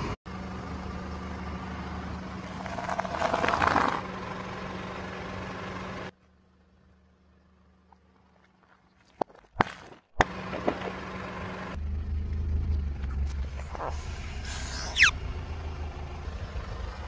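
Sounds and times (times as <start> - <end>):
car engine and tyre rumble: 0.0 - 17.0
objects cracking under car tyre: 2.4 - 4.0.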